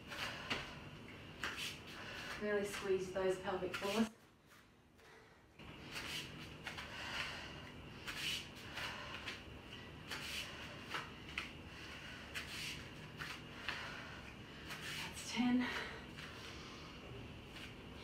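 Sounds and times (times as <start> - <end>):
faint low hum: 0.0 - 18.0
bare feet scuffing on tiles: 1.4 - 4.7, 5.8 - 7.3, 10.0 - 14.0, 17.4 - 17.8.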